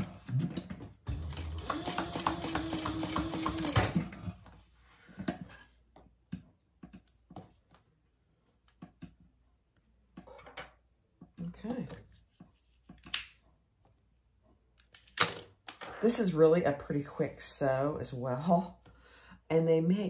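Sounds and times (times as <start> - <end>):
sewing machine stitching: 1.1 - 4.2.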